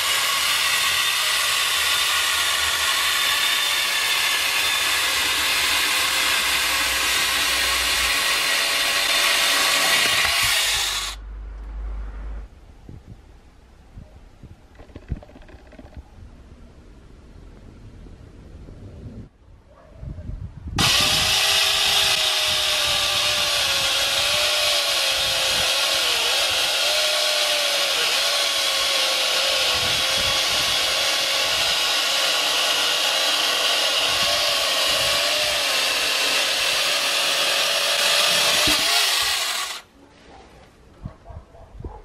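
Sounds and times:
chainsaw attachment cutting log: 0.0s - 11.2s, 20.8s - 39.9s.

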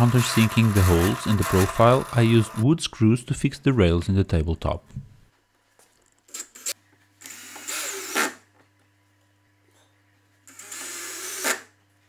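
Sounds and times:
cordless drill running: 0.0s - 2.6s, 6.6s - 8.4s, 10.5s - 11.7s.

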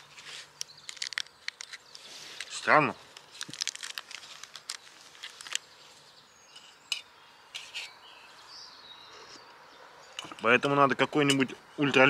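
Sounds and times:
faint bird chirps: 4.8s - 11.9s
spoon scraping metal mug: 6.5s - 8.0s.

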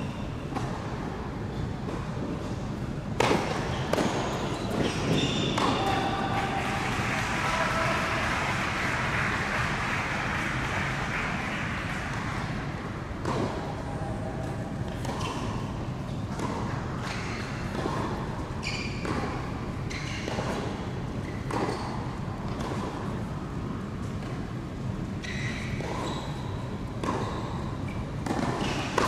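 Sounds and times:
tennis ball bouncing on court: 3.2s - 6.3s, 13.2s - 13.8s, 14.9s - 23.2s, 25.7s - 29.0s.

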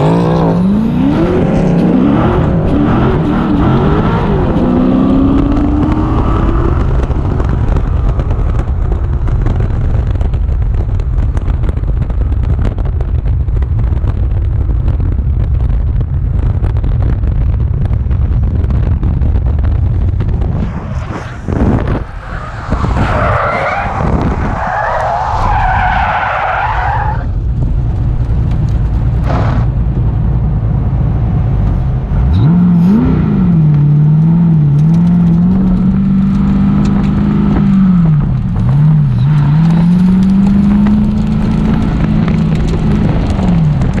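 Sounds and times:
car engine revving: 0.0s - 8.9s, 30.6s - 44.0s
tyre and wind rumble: 0.0s - 44.0s.

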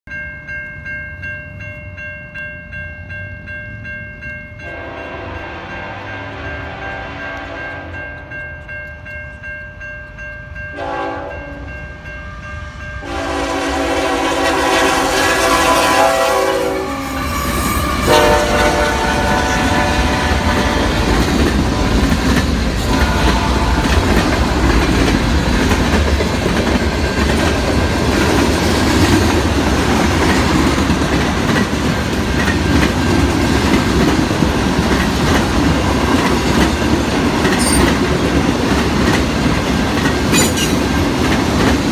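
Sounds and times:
freight train rumbling past: 3.0s - 41.9s
train horn blasts: 4.6s - 8.3s, 10.8s - 11.8s, 13.0s - 22.2s, 22.8s - 24.3s
train wheel clatter: 17.2s - 41.9s.

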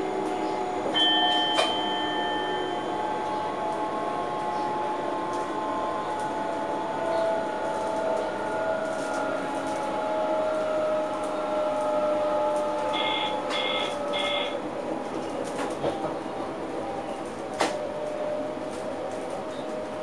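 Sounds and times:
electric train motor whine: 0.0s - 14.9s
train running noise: 0.0s - 20.0s.

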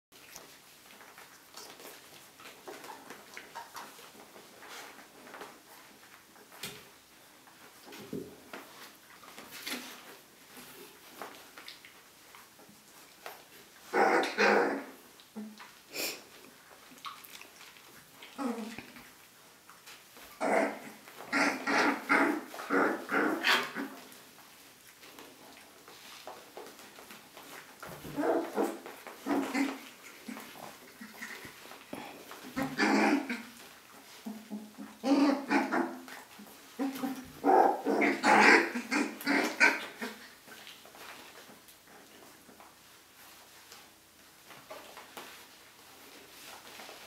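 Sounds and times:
puppies rustling and scuffling: 0.1s - 47.0s
dogs yelping and barking: 28.1s - 31.4s, 35.0s - 36.1s, 36.8s - 40.2s.

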